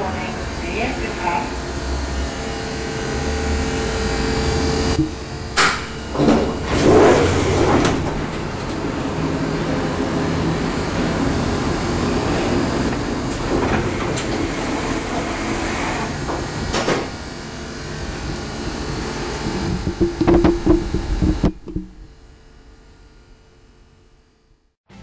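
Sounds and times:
elevator drive humming: 0.0 - 23.8
elevator doors closing: 4.9 - 17.5
elevator clunk: 5.0 - 9.5, 19.6 - 22.1.

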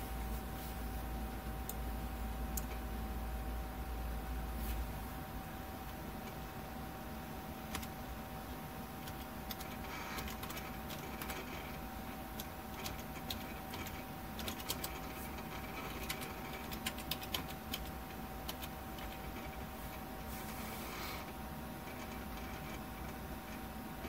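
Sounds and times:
machine whine and hum: 0.0 - 24.0.

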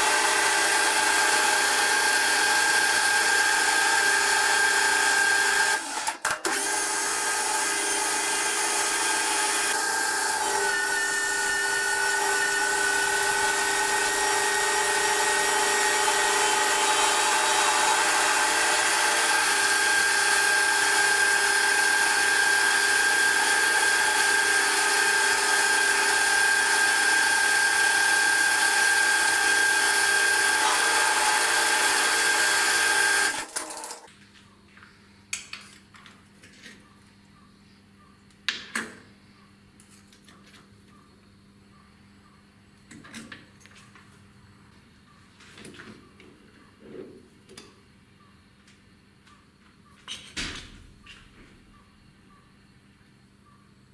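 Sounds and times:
metal lathe whining: 0.0 - 34.0.

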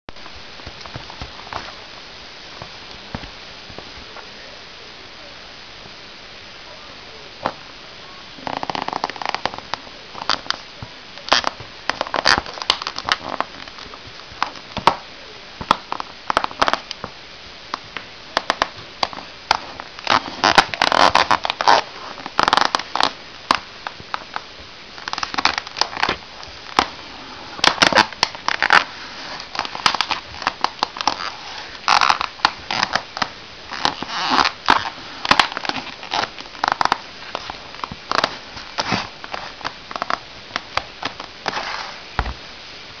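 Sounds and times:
plastic toy cracking under a shoe: 11.3 - 15.0, 18.4 - 24.4, 25.0 - 26.9, 27.6 - 41.3.

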